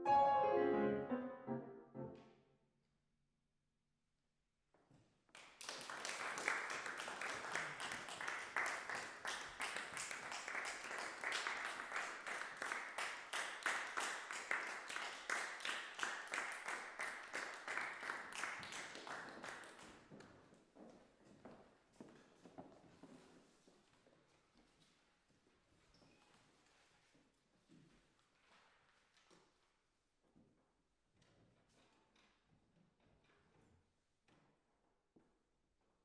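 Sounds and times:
piano chord: 0.0 - 2.4
audience applauding: 5.4 - 20.0.

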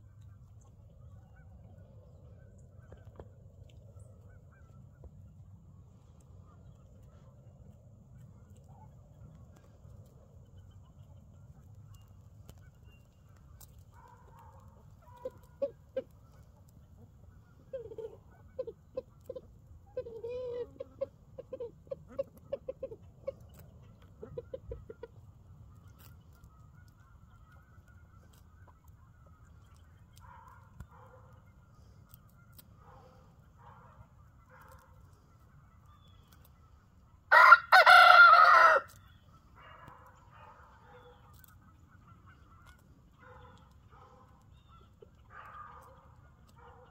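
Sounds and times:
chickens clucking: 6.2 - 39.0, 39.7 - 46.9
rooster crowing: 37.3 - 38.9.

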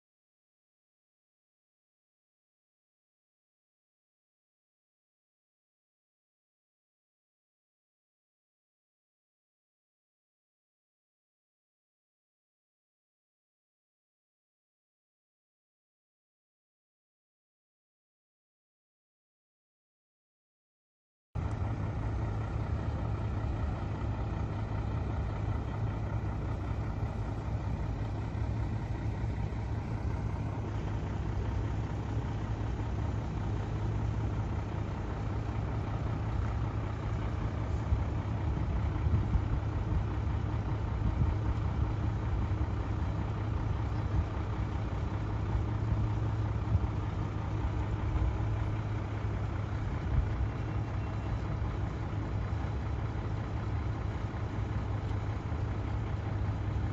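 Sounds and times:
fire engine idling: 21.4 - 56.9.

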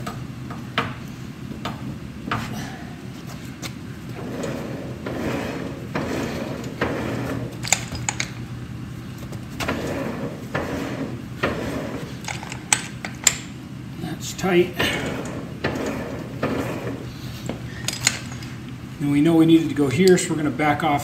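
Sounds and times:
metal rubbing and scraping: 4.1 - 8.4, 9.6 - 13.4, 14.9 - 18.6.

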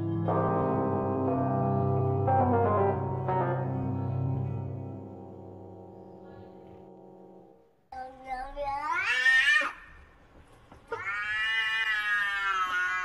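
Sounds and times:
cat yowling: 10.9 - 13.0.

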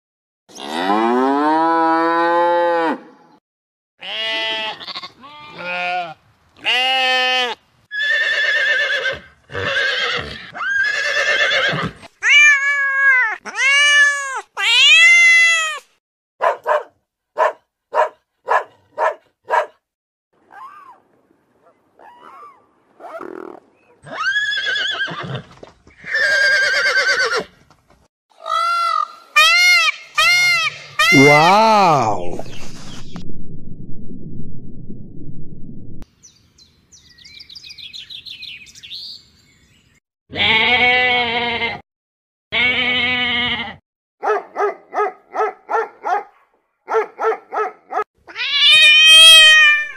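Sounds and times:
sheep bleating: 4.0 - 7.6, 40.3 - 41.8, 42.6 - 43.8
horse whinnying: 6.7 - 15.8, 22.0 - 27.6, 48.3 - 49.9
animal call arching in pitch: 48.3 - 49.9.

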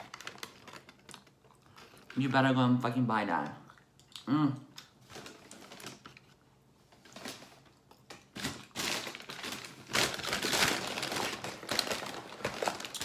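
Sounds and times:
paper bag rustling: 5.1 - 7.7, 8.4 - 13.0.

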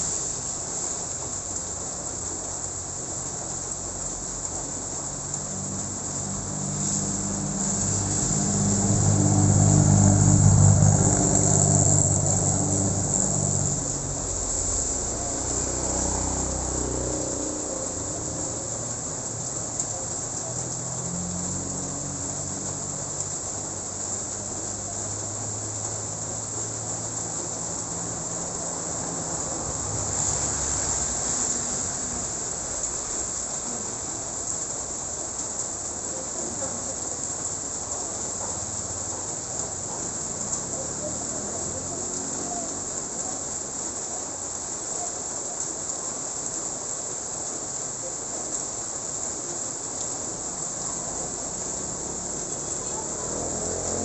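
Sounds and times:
light rain on a wet road: 0.0 - 54.0
truck engine driving off: 6.4 - 19.0, 51.1 - 54.0.

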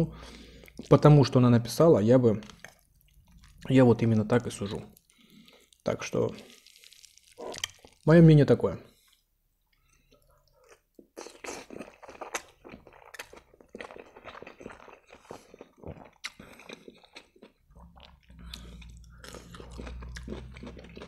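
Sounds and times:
wet chewing: 2.4 - 3.7, 9.7 - 21.0.

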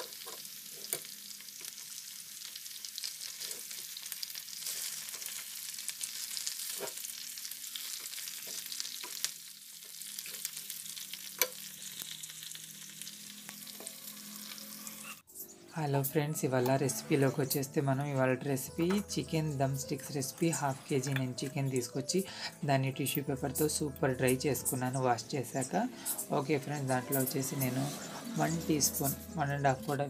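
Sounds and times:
chicken sizzling in hot oil: 0.0 - 15.3.

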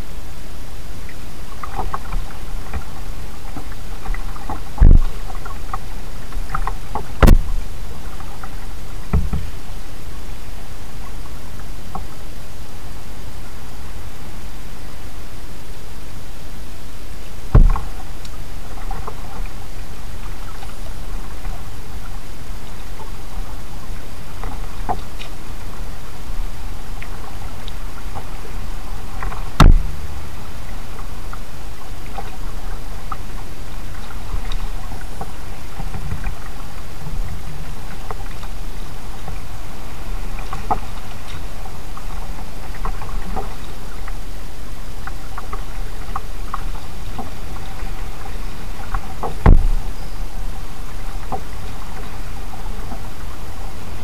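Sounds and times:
steady low noise: 0.0 - 54.0
water dripping from paddle: 1.0 - 9.6, 22.6 - 44.4
loud knocks on kayak: 4.8 - 5.1, 7.2 - 7.6, 9.1 - 9.5, 17.5 - 17.9, 29.6 - 30.1, 49.3 - 49.9.

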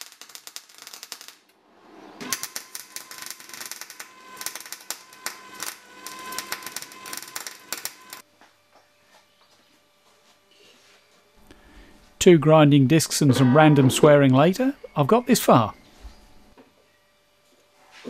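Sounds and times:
welder arc crackling: 0.0 - 1.6, 2.2 - 8.2.

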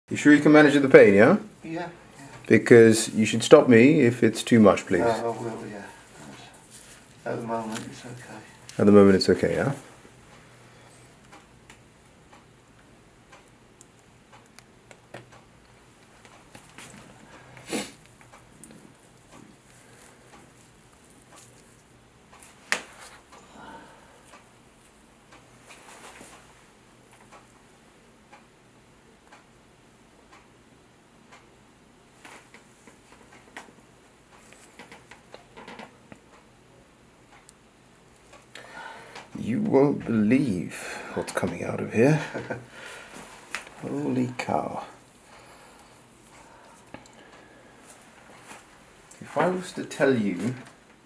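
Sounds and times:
clock ticking: 7.3 - 22.6, 24.2 - 25.6, 26.2 - 32.4, 33.3 - 47.5
small clicks and rustles: 13.3 - 23.4, 32.2 - 36.4.

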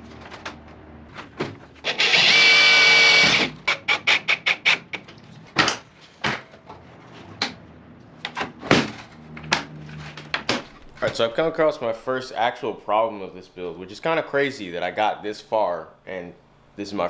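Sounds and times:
cordless drill driving a screw: 1.8 - 3.8.

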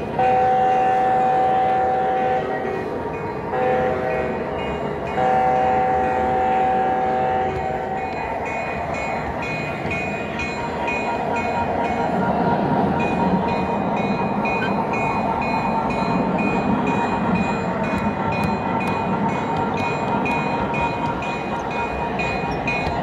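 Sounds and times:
model train rumbling on track: 0.0 - 23.0
train whistle: 0.1 - 2.9, 3.5 - 4.5, 5.1 - 8.2.

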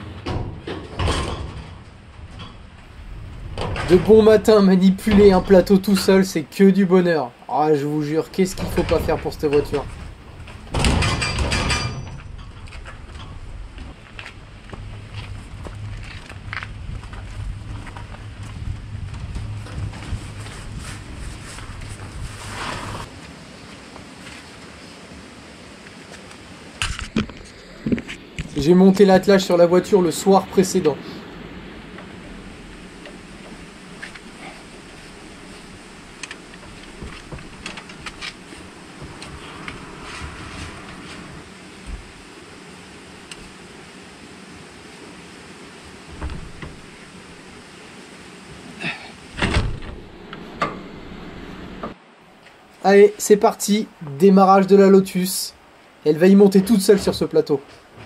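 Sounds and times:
sharp knocks and clunks: 0.0 - 2.8, 8.5 - 14.0
steady rushing background: 8.1 - 23.5, 25.1 - 52.1
low hum: 8.4 - 23.1, 26.9 - 52.2
wind on microphone: 9.8 - 23.1.

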